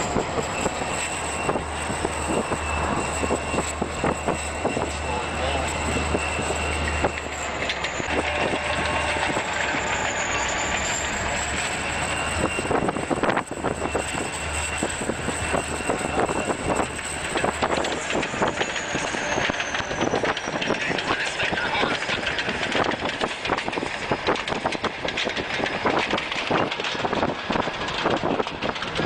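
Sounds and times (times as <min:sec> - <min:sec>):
low hum: 0:00.0 - 0:21.0
rushing of plowed snow and train: 0:00.0 - 0:29.0
train wheels clattering: 0:00.0 - 0:29.0.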